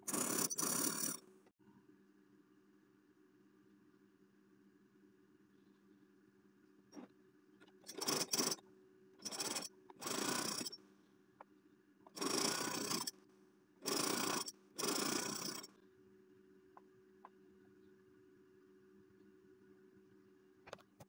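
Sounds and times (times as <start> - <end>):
sewing machine rasping bursts: 0.0 - 1.2, 7.8 - 8.6, 9.2 - 10.8, 12.1 - 13.1, 13.8 - 15.7
faint steady hum: 0.0 - 21.0.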